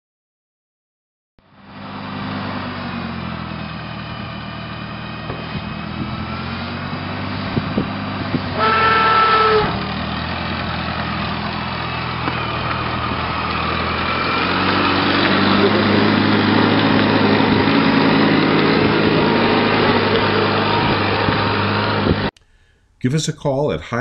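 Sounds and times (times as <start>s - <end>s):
tractor engine running: 1.4s - 23.7s
horn honking: 8.4s - 10.0s.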